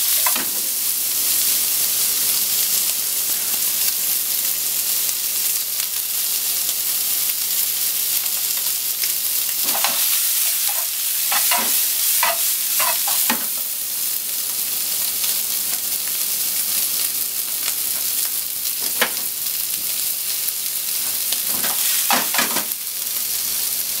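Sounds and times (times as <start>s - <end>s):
pork sizzling in frying pan: 0.0s - 24.0s.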